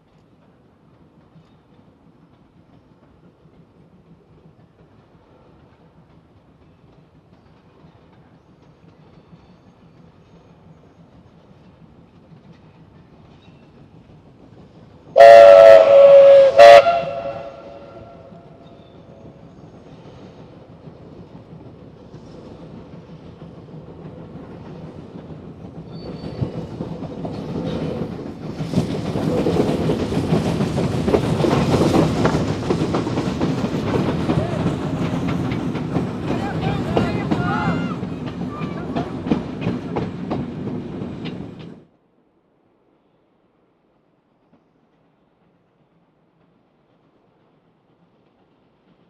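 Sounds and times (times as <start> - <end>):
train coaches running past: 0.0 - 49.0
steam locomotive whistle: 15.2 - 18.7.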